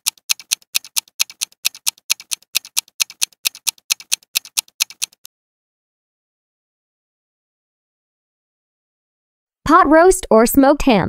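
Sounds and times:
fast countdown ticking: 0.0s - 5.3s.

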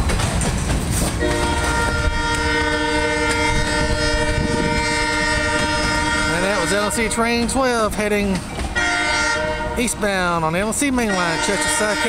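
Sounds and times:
train cars rolling past: 0.0s - 12.0s
locomotive air horn blast: 1.2s - 7.4s, 8.8s - 10.0s, 11.0s - 12.0s.

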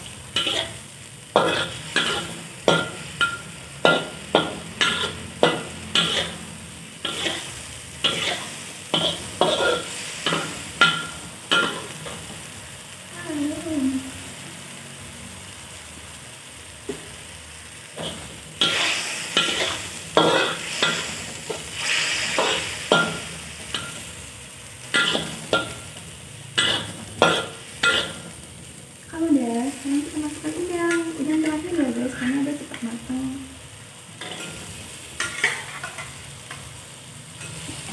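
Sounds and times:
metal spatula scraping wok: 0.0s - 12.4s, 18.0s - 28.5s, 34.2s - 37.9s
food sizzling in oil: 0.0s - 37.9s.

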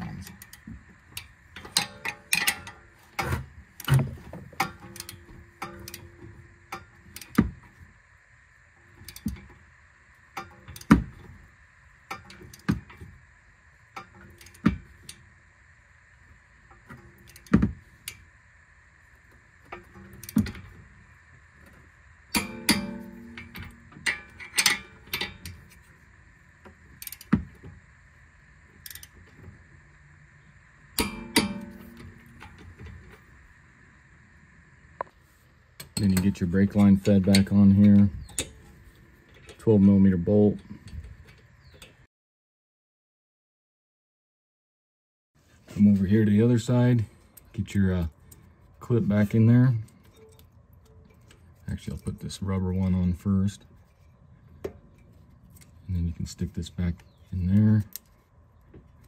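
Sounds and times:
hand tools clinking on metal: 1.6s - 2.8s, 22.3s - 25.8s.

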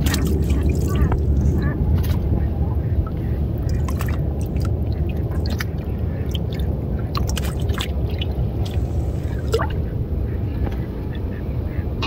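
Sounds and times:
hand rummaging in shallow water: 0.0s - 2.4s, 3.6s - 9.8s
small water splashes: 0.0s - 9.9s
steady low rumble: 0.0s - 12.0s.

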